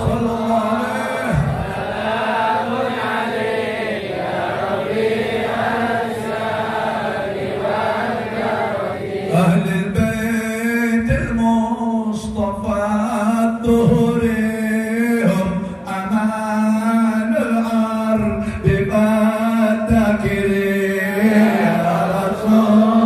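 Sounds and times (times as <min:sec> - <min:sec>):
man chanting into microphone: 0:00.0 - 0:03.4, 0:09.2 - 0:23.0
more voices chanting: 0:00.0 - 0:09.6.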